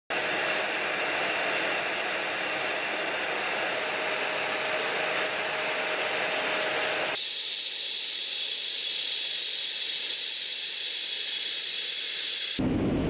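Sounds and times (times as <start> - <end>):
jet engines rushing: 12.3 - 13.0.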